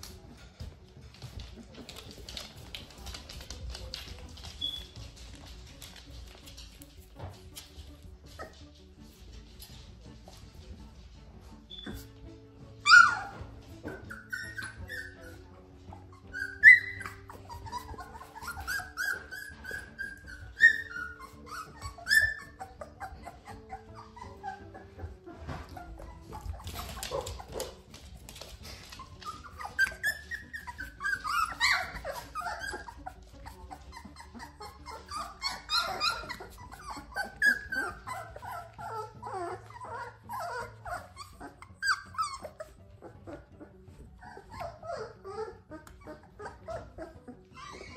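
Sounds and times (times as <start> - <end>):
puppies whimpering and whining: 0.0 - 47.9
puppy yelps: 12.8 - 27.8, 29.0 - 43.4, 44.2 - 47.9.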